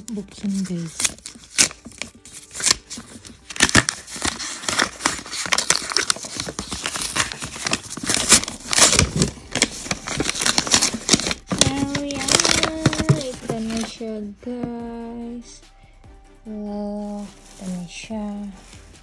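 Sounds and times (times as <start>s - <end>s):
wrapping paper crinkling and tearing: 0.0s - 14.0s.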